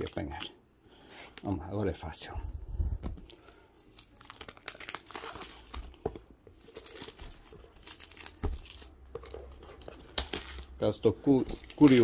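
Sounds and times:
plastic wrapping crinkling and tearing: 3.5 - 12.0.

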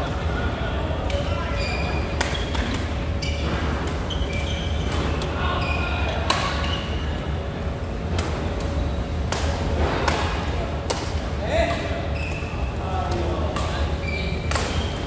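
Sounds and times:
steady low hum: 0.0 - 15.0
shoes squeaking on court floor: 1.2 - 7.3, 11.8 - 15.0
racket striking shuttlecock: 8.1 - 11.2, 14.5 - 15.0.

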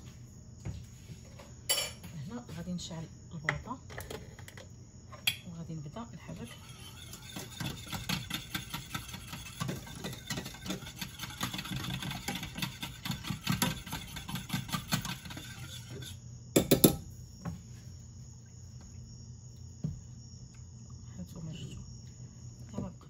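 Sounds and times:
whisk rattling against a saucepan: 6.2 - 17.0
whisk clatter: 6.3 - 16.7.

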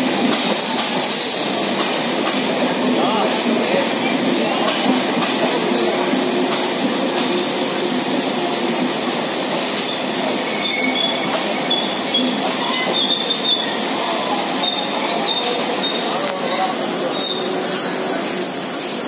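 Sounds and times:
train wheels rumbling on rails: 0.0 - 19.0
high-pitched wheel squeals: 10.5 - 13.8.

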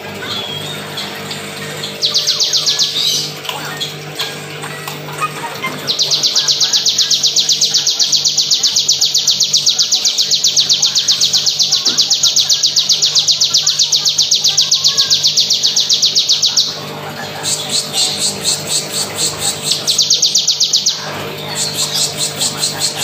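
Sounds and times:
bird high trill: 0.0 - 4.5, 5.1 - 16.8, 17.4 - 23.0.

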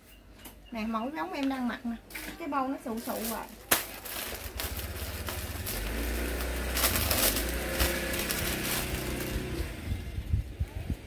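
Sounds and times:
fabric and plastic rustling: 1.3 - 9.9.

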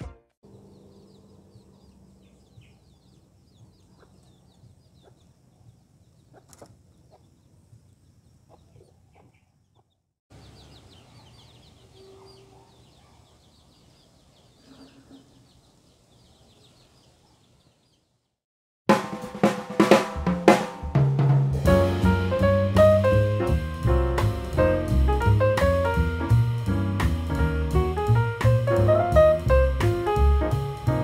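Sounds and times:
hen clucking: 0.5 - 7.6, 8.4 - 13.6
chicks peeping: 0.5 - 18.2.

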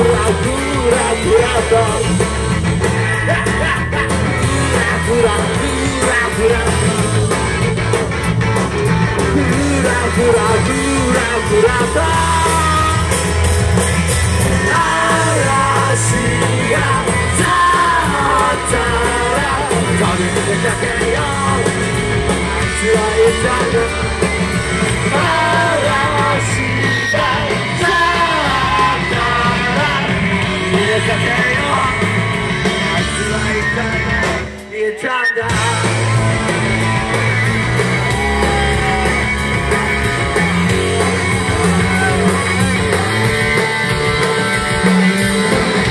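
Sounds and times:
person singing: 0.0 - 7.3, 9.2 - 13.2, 14.5 - 24.3, 24.9 - 32.2, 38.0 - 45.9
live rock band playing: 0.0 - 45.9.

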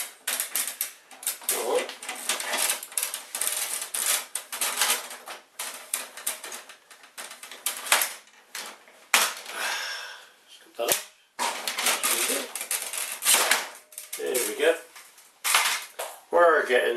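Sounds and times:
plastic parts clicking and rattling: 0.0 - 9.6, 10.8 - 14.8.

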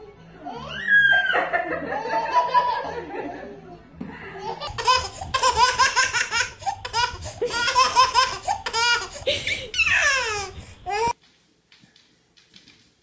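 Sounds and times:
baby laughing: 4.4 - 11.2.

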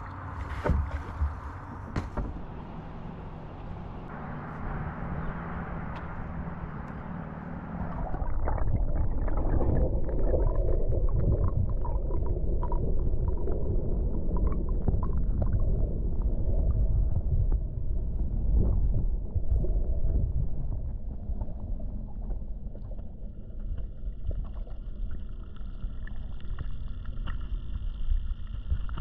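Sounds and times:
muffled underwater water rumble: 0.0 - 29.0
small underwater clicks and crackles: 7.9 - 29.0.

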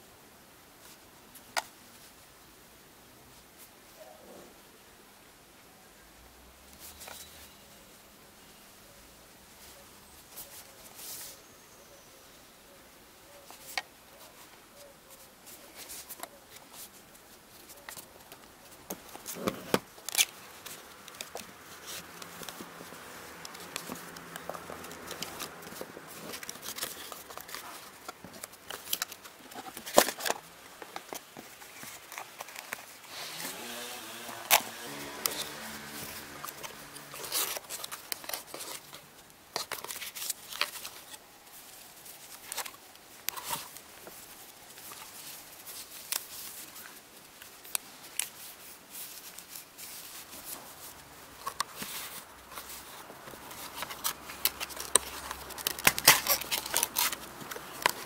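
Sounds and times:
scraping rustles: 13.4 - 58.0
paper pages leafed: 15.1 - 58.0.

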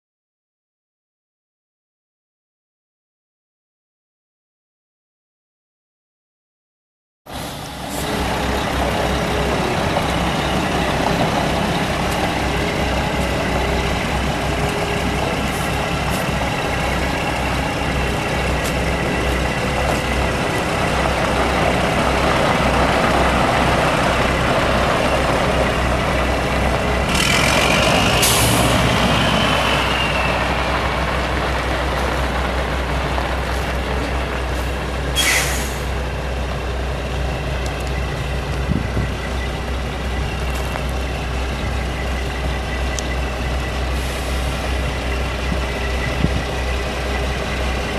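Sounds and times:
air brakes hissing: 7.3 - 8.5, 27.9 - 30.6, 34.5 - 36.0, 43.9 - 44.8
diesel truck engine running: 7.3 - 47.9.

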